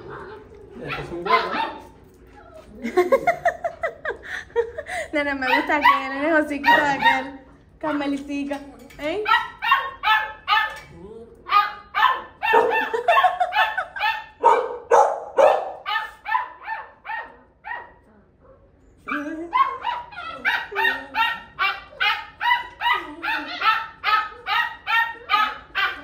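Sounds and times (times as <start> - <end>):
dog barking: 0.9 - 1.9, 5.5 - 7.4, 9.3 - 10.8, 11.5 - 18.0, 19.1 - 26.0.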